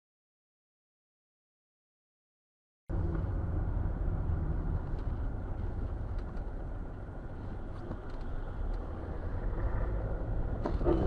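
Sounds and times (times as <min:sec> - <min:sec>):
car engine and road rumble: 0:02.9 - 0:11.0.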